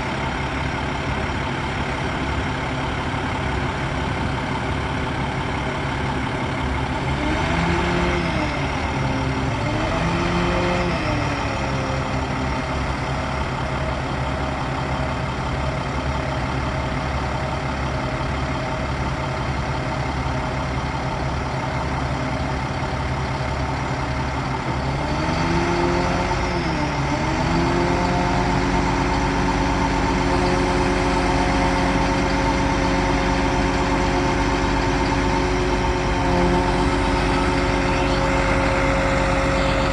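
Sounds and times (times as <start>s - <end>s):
diesel truck engine running: 0.0s - 39.9s.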